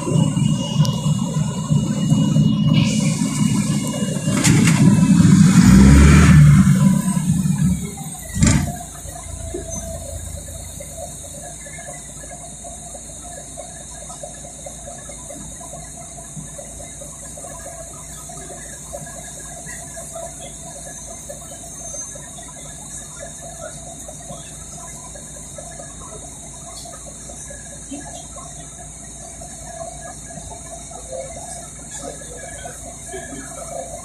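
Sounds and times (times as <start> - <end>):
bus engine rumbling: 0.0 - 12.3
constant high hiss: 0.0 - 34.0.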